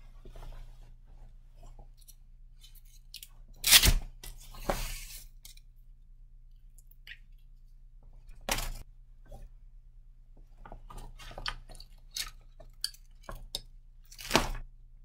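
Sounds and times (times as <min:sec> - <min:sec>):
clothing rustling: 0:00.0 - 0:02.8.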